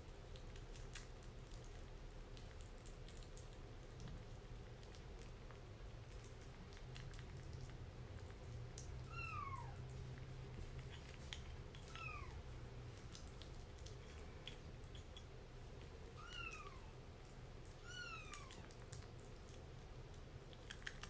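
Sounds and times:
kitten eating wet food: 0.0s - 21.0s
kitten mewing: 9.0s - 9.9s, 11.8s - 12.4s, 16.1s - 17.0s, 17.8s - 18.8s.

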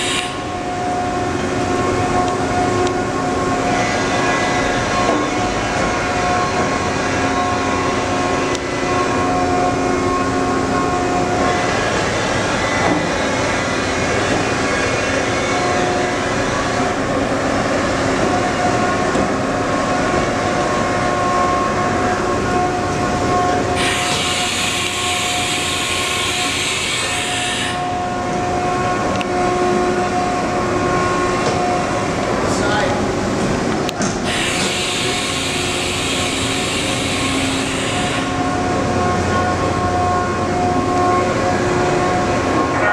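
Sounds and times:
machine mechanical hum: 0.0s - 42.9s
loud hiss: 23.8s - 27.8s, 34.3s - 38.3s.

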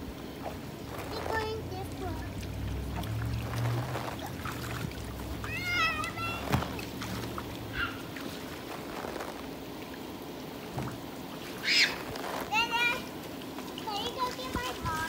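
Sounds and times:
child squealing: 5.4s - 6.6s, 7.7s - 8.1s, 11.6s - 12.0s.

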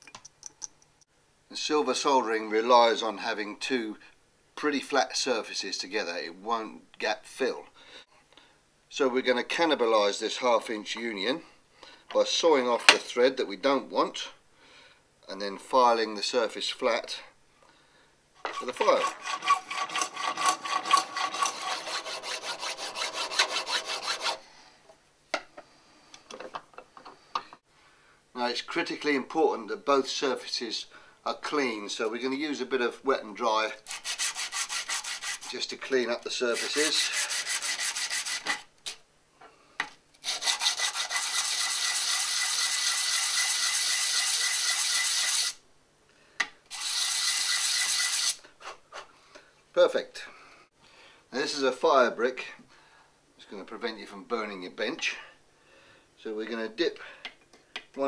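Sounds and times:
hacksaw cutting metal: 18.4s - 24.4s, 33.9s - 35.5s, 40.2s - 45.6s, 46.7s - 48.4s
metal rubbing on abrasive paper: 33.8s - 35.7s, 36.4s - 38.6s, 40.2s - 45.6s, 46.7s - 48.4s.

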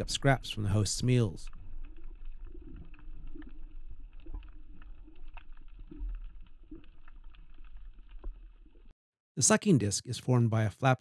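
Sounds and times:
low underwater rumble: 0.0s - 8.9s
faint clicks and pops: 0.9s - 9.0s.

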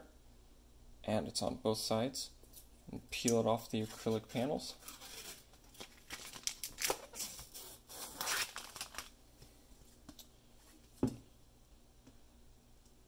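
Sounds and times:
plastic film peeling and crackling: 4.8s - 9.2s.

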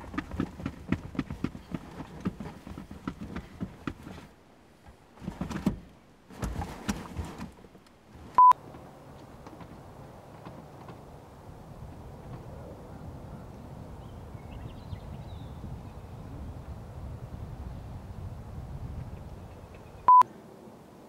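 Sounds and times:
ticking inside a car: 0.0s - 7.6s
electronic beep: 8.4s - 8.6s.

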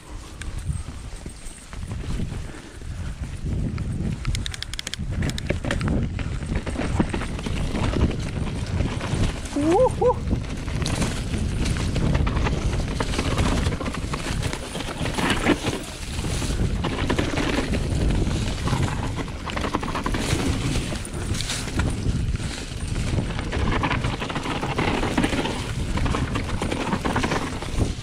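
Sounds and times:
bike rattling clicks and knocks: 0.0s - 28.0s
wind on microphone: 0.0s - 28.0s
tyres rolling over dirt and leaves: 5.6s - 28.0s.

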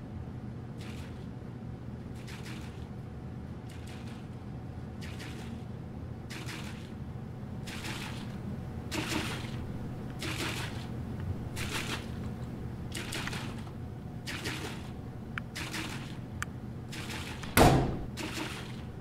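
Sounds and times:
washing machine hum: 0.0s - 19.0s
water and clothes sloshing in drum: 2.1s - 3.0s, 5.0s - 7.0s, 7.6s - 16.3s, 16.9s - 19.0s.

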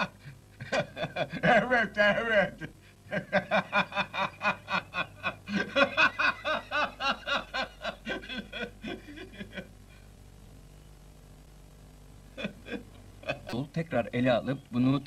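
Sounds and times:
person laughing: 0.0s - 1.8s, 2.6s - 9.7s, 12.4s - 13.5s.

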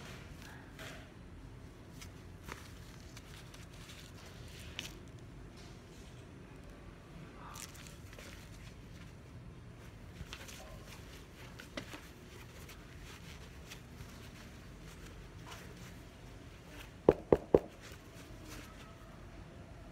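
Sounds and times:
fabric rustling: 1.8s - 6.7s, 7.5s - 19.4s
sharp knock: 17.1s - 17.7s.

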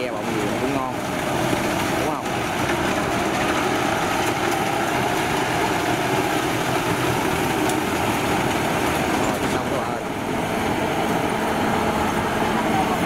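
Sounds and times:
combine harvester engine drone: 0.0s - 13.0s.

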